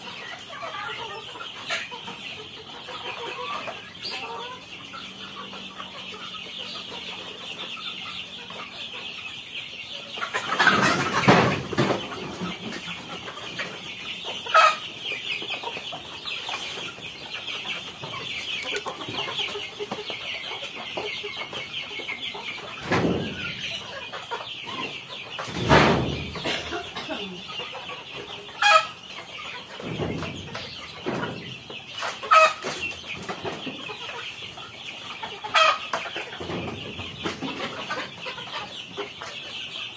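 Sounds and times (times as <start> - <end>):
chickens clucking: 0.0 - 39.9
loud chicken calls: 9.9 - 39.9.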